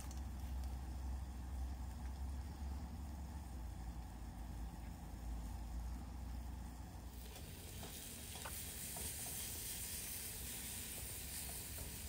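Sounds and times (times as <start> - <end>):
low steady rumble: 0.0 - 12.0
food sizzling in a pan: 7.1 - 12.0.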